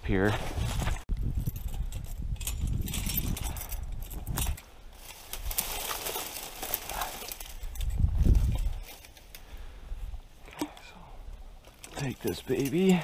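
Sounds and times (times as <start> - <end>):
dry brush and leaves crackling: 2.5 - 13.0
low rumble on microphone: 7.6 - 8.8.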